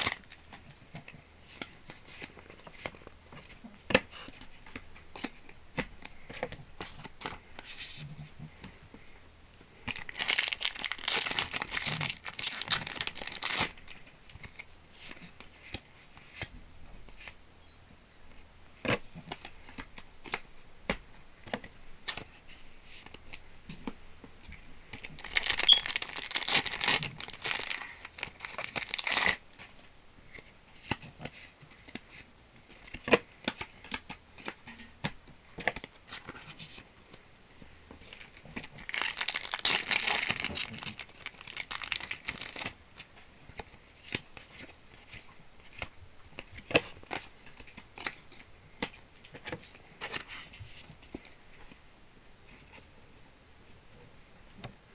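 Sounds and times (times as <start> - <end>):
foil wrapper tearing and crinkling: 9.9 - 13.8, 25.1 - 29.4, 38.1 - 42.8.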